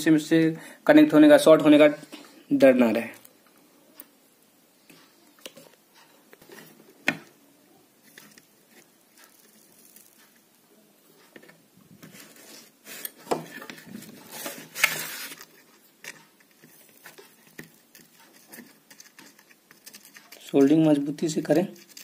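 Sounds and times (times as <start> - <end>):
soft taps and scrapes: 4.8 - 7.3, 11.2 - 20.8
rustling and scraping: 4.9 - 7.0, 8.0 - 10.5, 11.2 - 22.0.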